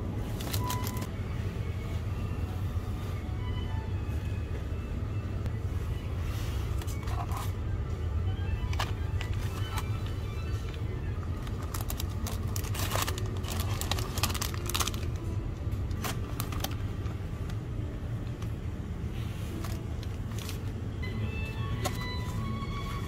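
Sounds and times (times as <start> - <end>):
low background hum: 0.0 - 23.0
plastic pouches crinkling: 0.3 - 1.1, 8.7 - 17.6, 19.5 - 20.8.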